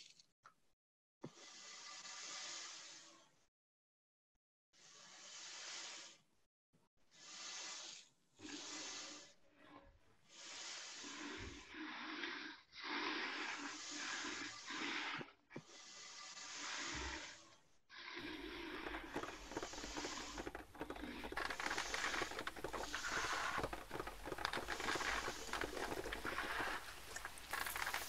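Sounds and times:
rough sheet rubbed by hand: 1.3s - 3.2s, 4.8s - 6.3s, 7.1s - 17.6s, 18.2s - 28.0s
pages riffled: 18.2s - 28.0s.

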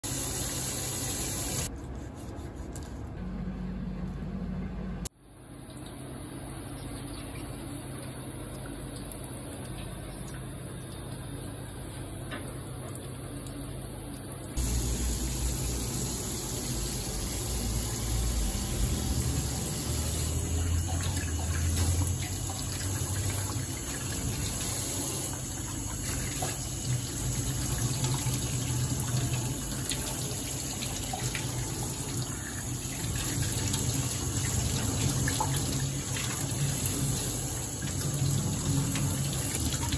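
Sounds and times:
low hum: 2.8s - 5.1s.

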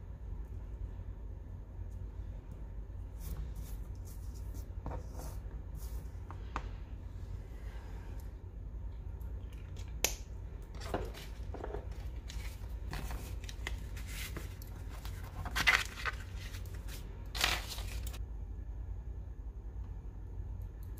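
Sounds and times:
paper rustling and scraping: 10.8s - 18.2s.

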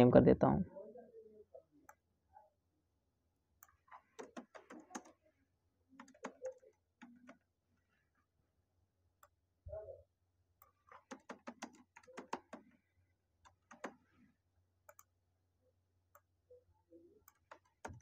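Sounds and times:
keyboard typing: 3.6s - 5.3s, 5.9s - 7.5s, 10.6s - 15.2s, 17.2s - 18.0s.

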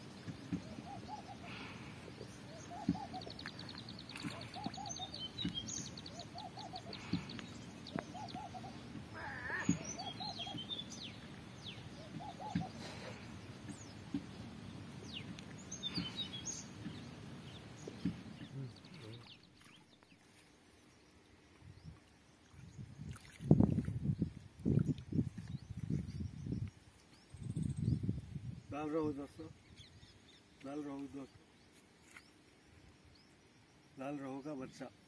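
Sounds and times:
birds calling: 0.0s - 21.0s.

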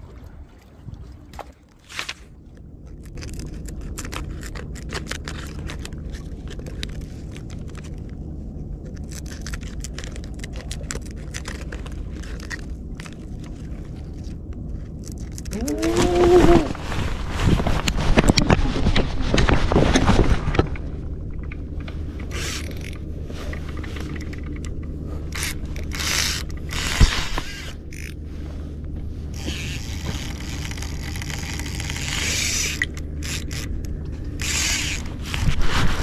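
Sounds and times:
low rumble: 0.0s - 36.0s
fishing reel ratcheting: 22.2s - 23.0s, 25.3s - 28.2s, 29.3s - 35.3s.

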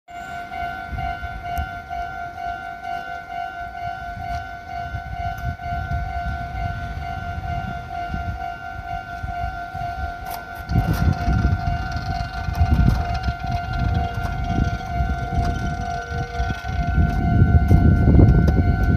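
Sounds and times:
level crossing warning bell: 0.1s - 18.9s
low rumble: 9.2s - 18.9s.

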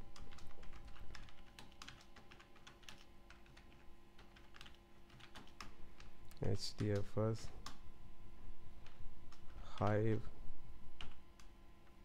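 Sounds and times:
faint steady hum: 0.0s - 12.0s
computer keyboard typing: 0.1s - 7.8s.

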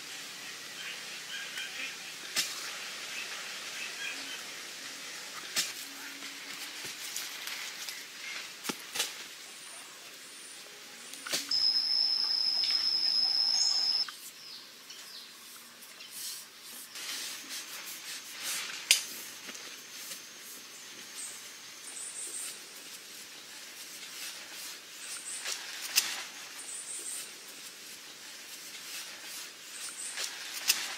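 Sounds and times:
high-pitched whistling call: 11.5s - 14.1s
sharp taps and scraping in mud: 30.0s - 30.9s.

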